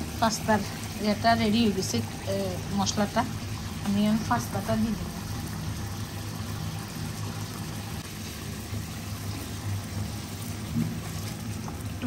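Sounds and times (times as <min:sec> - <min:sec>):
sauce simmering and bubbling: 0:00.0 - 0:12.0.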